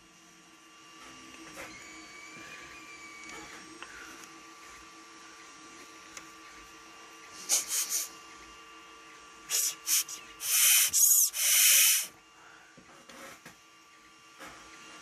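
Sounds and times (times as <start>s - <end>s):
air hissing through carburetor: 9.5s - 12.1s.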